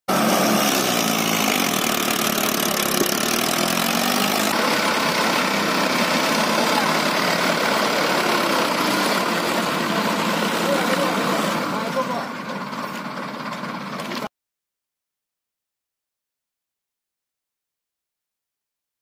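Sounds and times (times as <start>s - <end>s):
tractor diesel engine idling: 0.1s - 14.3s.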